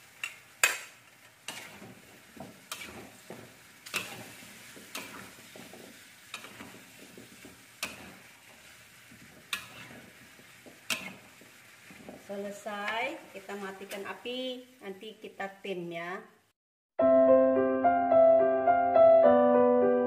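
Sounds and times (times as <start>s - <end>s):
metal spatula scraping wok: 0.2s - 12.2s
food shuffling in wok: 0.8s - 14.1s.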